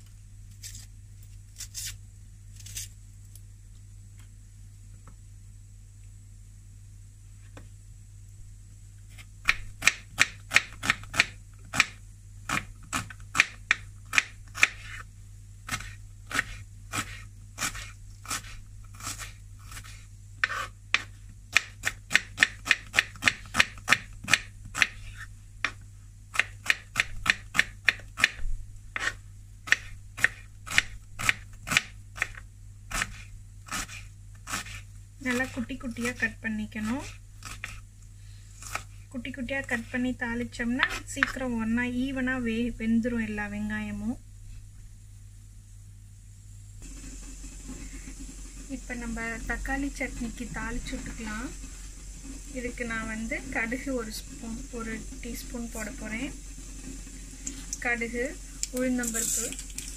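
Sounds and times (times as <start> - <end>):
knife chopping on wooden board: 9.4 - 15.0, 15.7 - 25.8, 26.4 - 28.4, 29.0 - 34.8.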